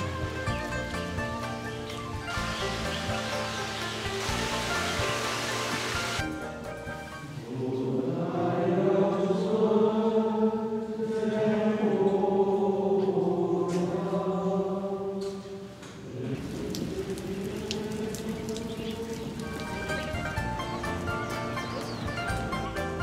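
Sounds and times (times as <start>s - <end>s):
congregation chanting in unison: 7.2s - 19.4s.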